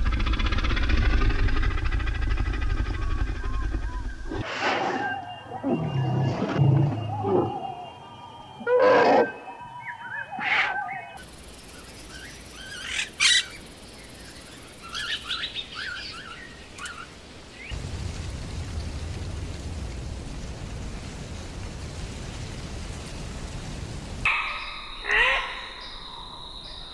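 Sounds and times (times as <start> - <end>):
loud animal calls: 10.1 - 11.2, 24.3 - 26.9
bird's short high chirps: 24.3 - 26.9.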